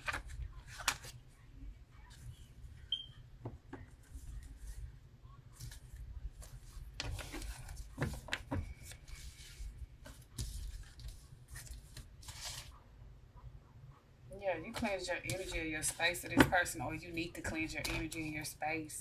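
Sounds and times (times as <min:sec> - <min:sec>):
paper rustling on a table: 0:00.0 - 0:01.2, 0:05.5 - 0:12.8.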